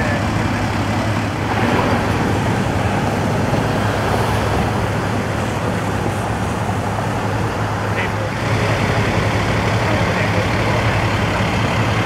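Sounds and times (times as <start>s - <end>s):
diesel engine idling: 0.0s - 12.0s
road traffic noise: 0.0s - 12.0s.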